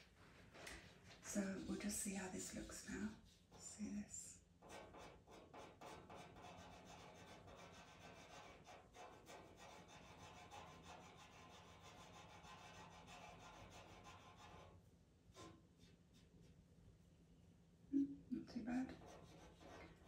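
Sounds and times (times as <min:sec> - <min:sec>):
pencil scratching on paper: 0:01.2 - 0:03.8, 0:04.6 - 0:16.3, 0:18.9 - 0:20.0.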